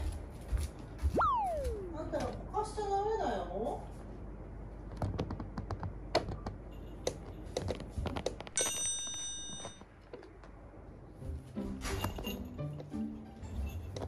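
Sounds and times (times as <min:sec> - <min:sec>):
bright ringing tone: 0:08.6 - 0:09.8.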